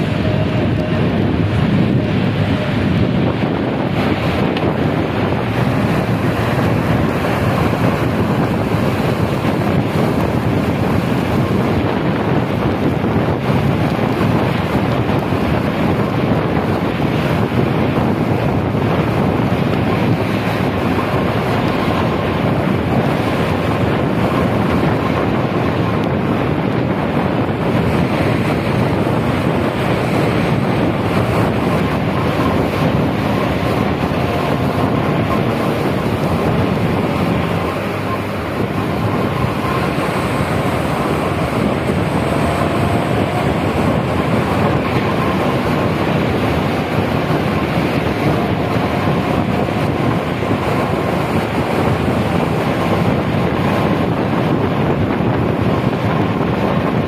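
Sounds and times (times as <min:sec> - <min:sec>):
wet road noise: 0:00.0 - 0:57.0
wind over microphone: 0:00.0 - 0:57.0.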